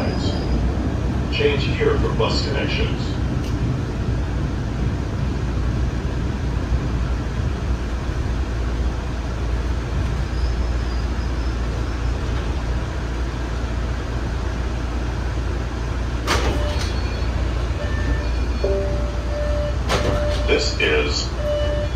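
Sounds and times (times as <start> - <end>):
subway car rumbling on track: 0.0 - 21.9
faint high tone: 18.6 - 19.8.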